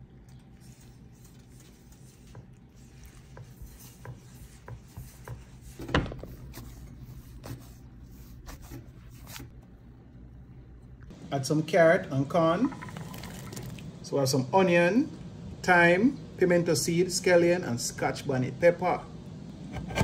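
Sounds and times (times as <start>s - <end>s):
hands kneading dough in a bowl: 0.0s - 9.6s.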